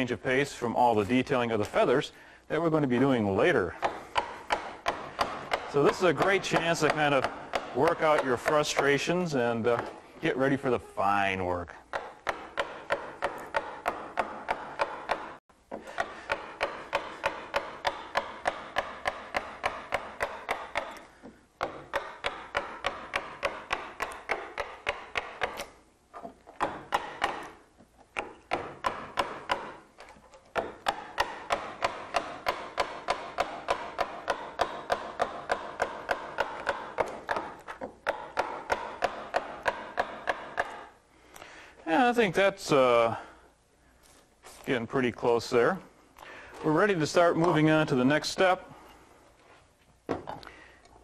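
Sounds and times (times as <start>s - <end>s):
mallet knocking on gouge: 2.7s - 10.0s, 11.9s - 27.6s, 28.2s - 41.0s.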